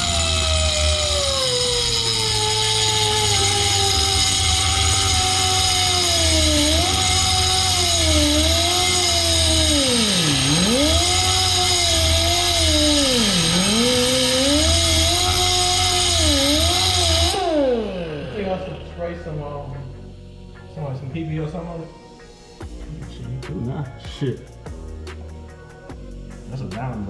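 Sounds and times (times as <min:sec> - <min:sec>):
air grinder whining on metal: 0:00.0 - 0:21.2.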